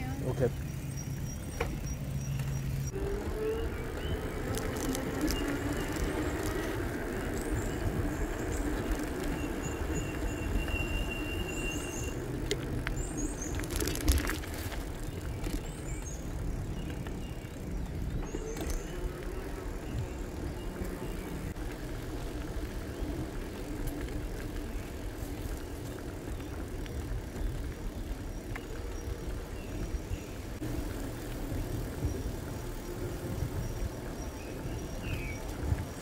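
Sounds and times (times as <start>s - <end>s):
bike tyre rumble: 0.0s - 36.0s
wind buffeting microphone: 2.8s - 36.0s.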